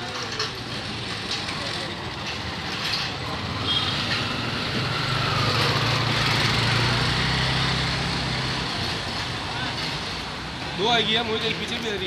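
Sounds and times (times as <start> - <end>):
street traffic: 0.0 - 12.0
motor scooter engine: 0.1 - 10.6.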